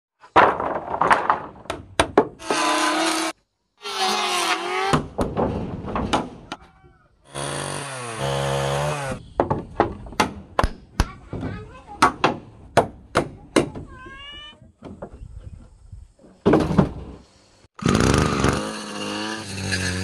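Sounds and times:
power tool whining: 7.3s - 9.2s.

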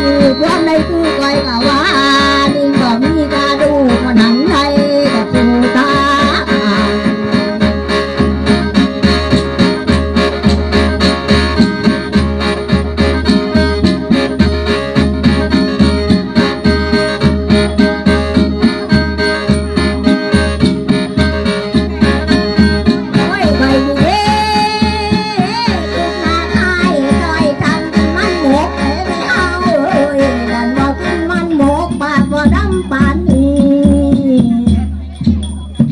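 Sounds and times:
person singing: 0.0s - 7.7s, 23.1s - 34.9s
steady drumbeat: 0.0s - 35.9s.

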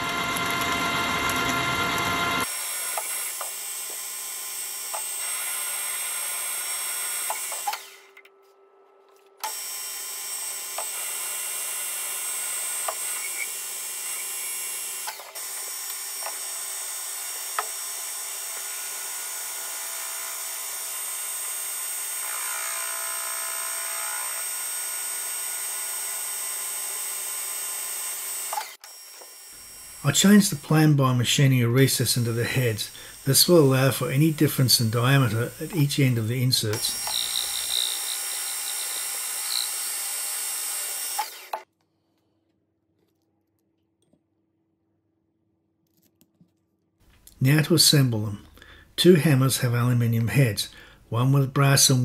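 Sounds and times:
lathe motor hum: 0.0s - 8.0s, 9.4s - 31.0s, 32.0s - 41.6s
turning tool cutting metal: 0.0s - 8.2s, 9.4s - 41.7s.

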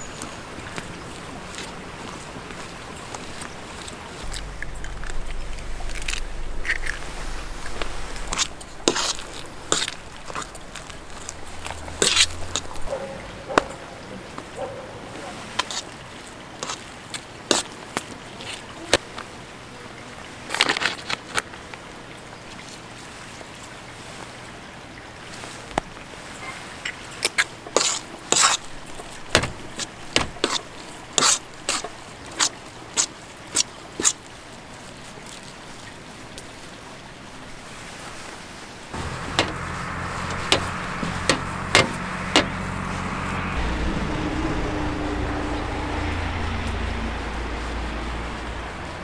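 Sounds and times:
vehicle engine running: 4.2s - 14.0s, 39.0s - 49.0s
sharp clicks and knocks: 28.4s - 30.6s, 39.0s - 42.6s.

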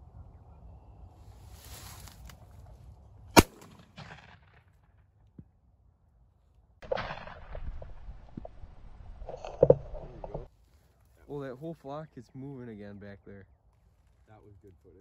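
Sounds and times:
shotgun blast: 3.4s - 4.7s, 6.8s - 8.0s
rustling and small knocks: 6.8s - 11.0s.

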